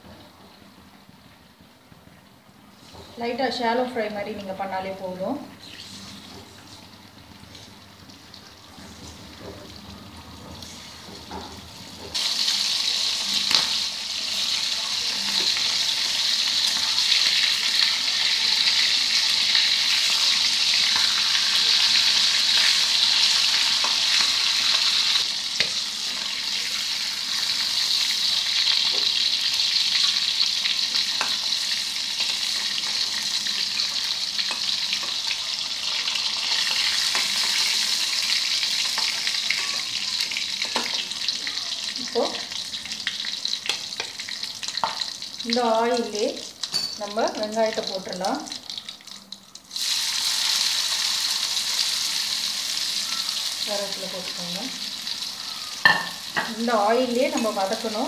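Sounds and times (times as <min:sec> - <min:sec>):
meat sizzling in hot oil: 0:12.0 - 0:58.0.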